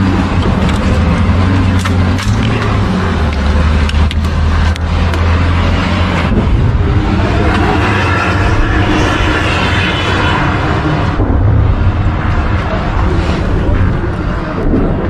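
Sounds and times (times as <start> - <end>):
vehicle engine droning: 0.0 - 15.0
sharp clicks: 0.3 - 5.4.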